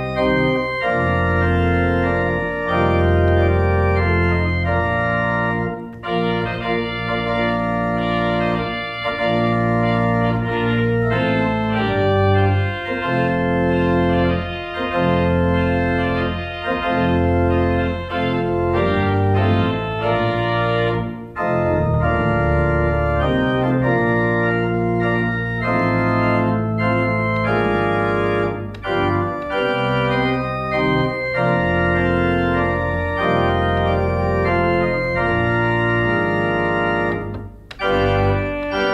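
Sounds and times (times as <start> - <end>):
pipe organ playing slow chords: 0.0 - 38.9.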